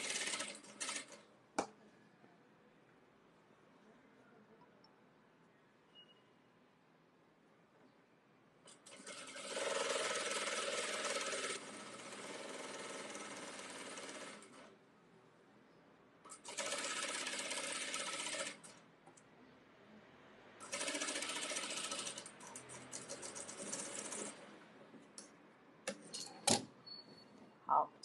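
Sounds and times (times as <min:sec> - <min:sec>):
sewing machine stitching: 0:00.0 - 0:01.2, 0:08.7 - 0:14.7, 0:16.3 - 0:18.8, 0:20.6 - 0:24.4.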